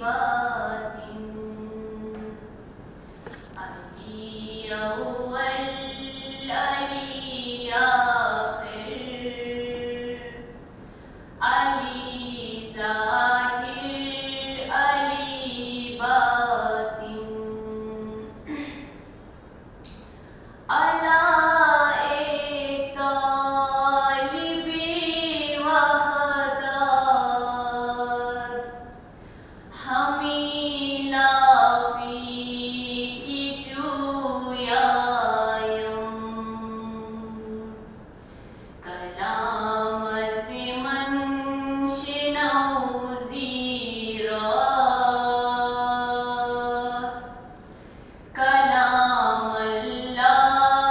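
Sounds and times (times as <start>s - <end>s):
woman chanting: 0.0s - 2.5s, 3.5s - 10.6s, 11.4s - 18.9s, 20.7s - 29.0s, 29.7s - 38.0s, 38.8s - 47.6s, 48.3s - 50.9s
breath: 10.8s - 11.4s, 29.2s - 29.7s, 38.2s - 38.8s, 47.6s - 48.3s.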